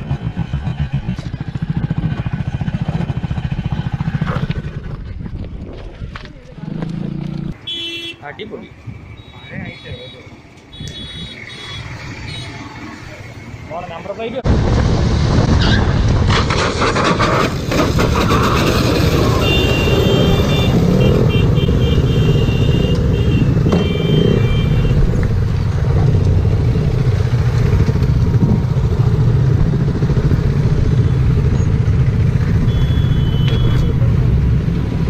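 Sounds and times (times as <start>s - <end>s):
motorcycle engine rumble: 0.0s - 13.8s, 17.7s - 35.0s
wind noise on microphone: 4.1s - 6.8s, 27.7s - 34.3s
horn beeping: 7.6s - 8.3s, 9.2s - 12.8s, 19.3s - 25.2s, 32.4s - 34.1s.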